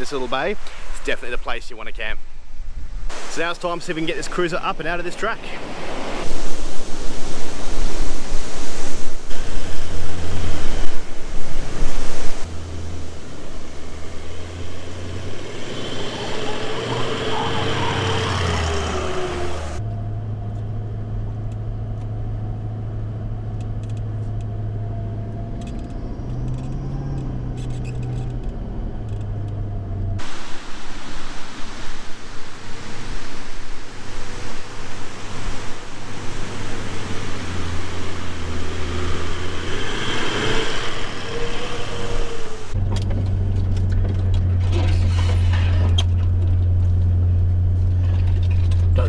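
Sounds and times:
engine drone in sand: 0:03.1 - 0:49.0
wind on microphone: 0:05.6 - 0:19.8, 0:30.2 - 0:42.8.

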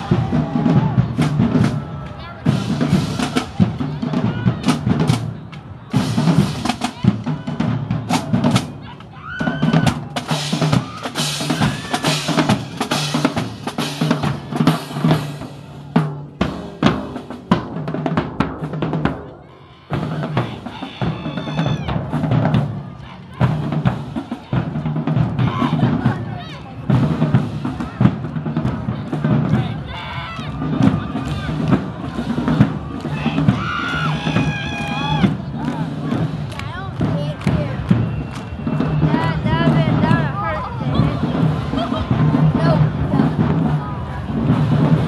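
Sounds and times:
bass drums: 0:00.0 - 0:45.0
snare drums: 0:00.0 - 0:45.0.

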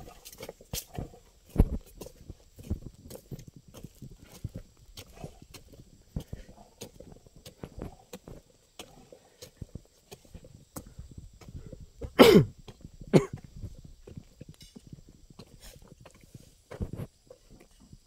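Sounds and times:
footsteps on dirt track: 0:00.0 - 0:18.0
person coughing: 0:12.2 - 0:12.5, 0:13.1 - 0:13.4.

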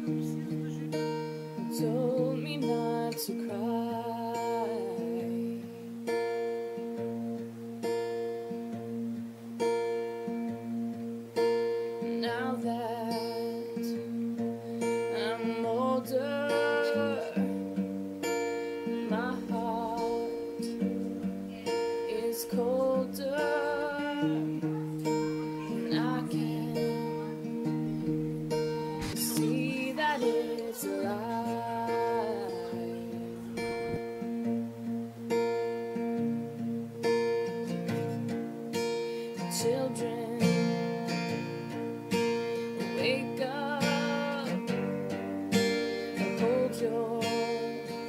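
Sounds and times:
person singing: 0:00.0 - 0:06.7, 0:11.6 - 0:34.5, 0:38.8 - 0:48.0
acoustic guitar strumming: 0:00.0 - 0:48.0.

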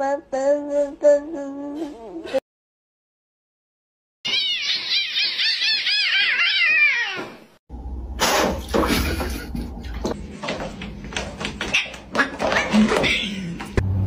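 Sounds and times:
cat yowling: 0:04.3 - 0:07.4
low hum: 0:07.7 - 0:11.4.

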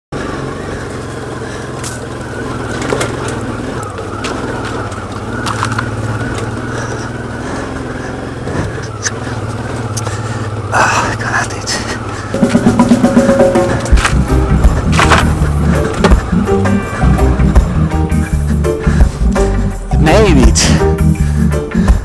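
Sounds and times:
motorcycle engine running: 0:00.1 - 0:22.0
stones clicking under tyres: 0:00.8 - 0:12.4, 0:13.8 - 0:16.8.

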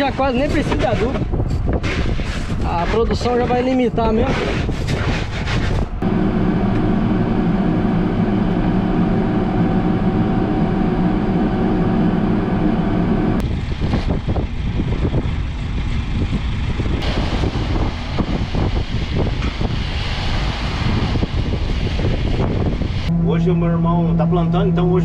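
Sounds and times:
rough rushing noise: 0:04.2 - 0:24.3
tractor engine running: 0:06.0 - 0:19.8.

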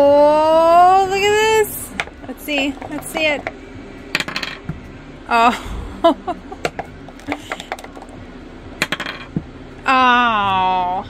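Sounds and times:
dice clacking on wooden table: 0:08.8 - 0:09.3.

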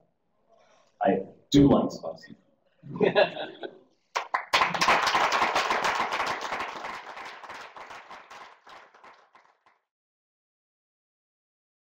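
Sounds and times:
audience applauding: 0:04.2 - 0:09.8.

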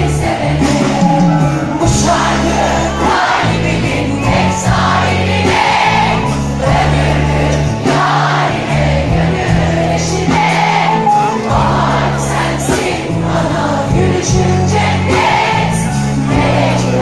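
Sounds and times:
live pop band: 0:00.0 - 0:17.0
woman singing: 0:12.5 - 0:15.3.

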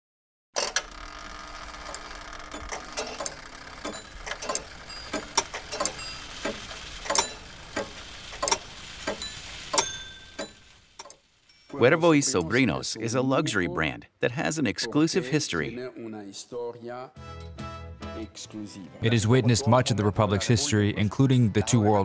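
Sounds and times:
clock ticking: 0:01.7 - 0:13.8.

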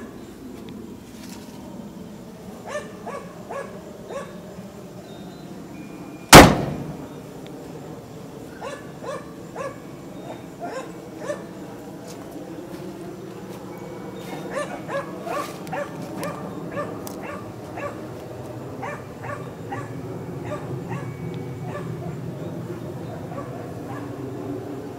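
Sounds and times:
dog barking: 0:02.6 - 0:04.4, 0:08.6 - 0:11.5, 0:14.5 - 0:18.1, 0:18.8 - 0:22.2, 0:23.3 - 0:24.2.

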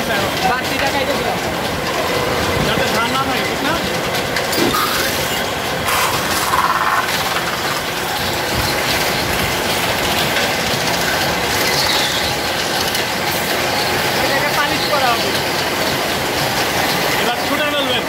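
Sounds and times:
metal spinning lathe rumbling: 0:00.0 - 0:18.0
tool scraping spinning metal: 0:04.5 - 0:09.1.

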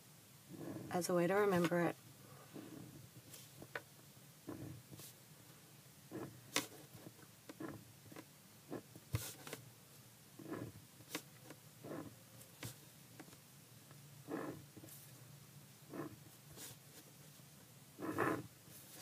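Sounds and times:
pencil scratching on paper: 0:18.0 - 0:19.0.

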